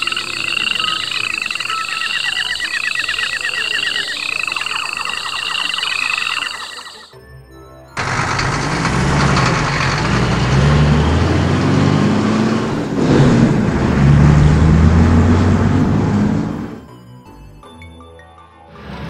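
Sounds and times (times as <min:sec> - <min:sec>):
heavy truck engine revving: 0:08.0 - 0:16.8.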